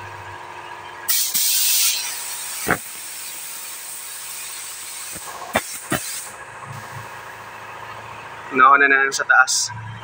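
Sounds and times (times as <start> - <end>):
spray gun air hiss: 1.1 - 7.1.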